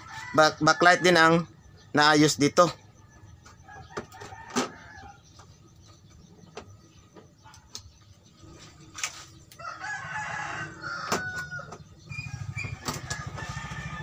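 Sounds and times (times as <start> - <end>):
rooster crowing: 0.0 - 1.5, 3.6 - 5.3, 9.6 - 14.0.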